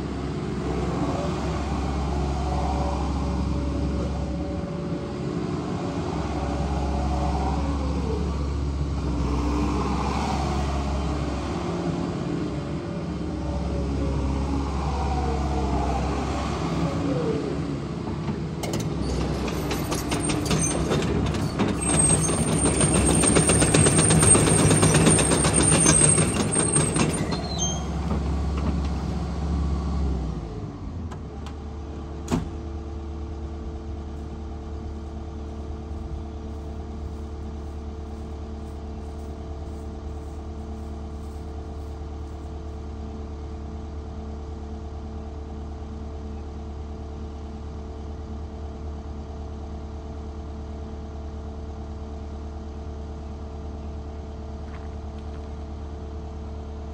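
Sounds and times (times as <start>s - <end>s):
excavator diesel engine: 0.0s - 56.9s
clattering tracks: 18.0s - 29.2s.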